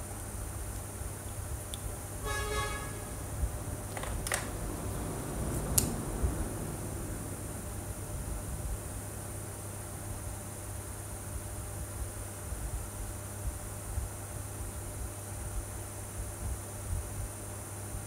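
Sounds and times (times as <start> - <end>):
steady hiss: 0.0 - 18.0
short honk-like tone: 2.2 - 3.3.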